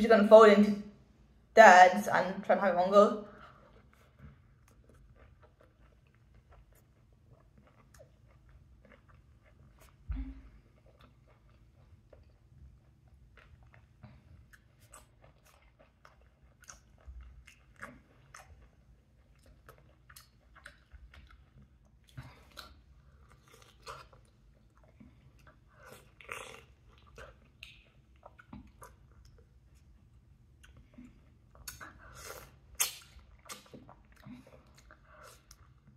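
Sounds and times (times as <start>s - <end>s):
person chewing and biting: 3.6s - 10.1s, 10.7s - 35.9s
mouth clicks and smacks: 27.2s - 29.5s, 31.5s - 35.6s.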